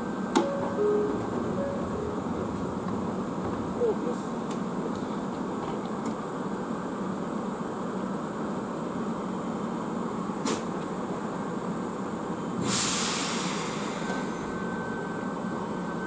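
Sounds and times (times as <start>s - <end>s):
electric train running: 0.0s - 6.2s
loud hiss of air: 12.6s - 14.4s.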